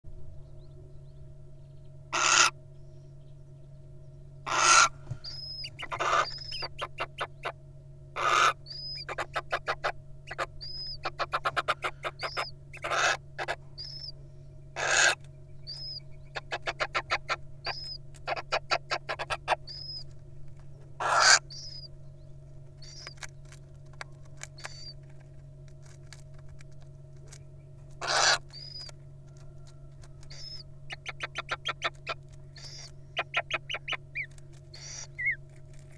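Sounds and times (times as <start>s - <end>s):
steady low hum: 0.0s - 35.9s
owl hissing screeches: 2.1s - 2.5s, 4.5s - 7.4s, 8.2s - 14.1s, 14.8s - 20.0s, 21.0s - 21.9s, 24.6s - 25.0s, 28.0s - 28.9s, 30.2s - 35.4s.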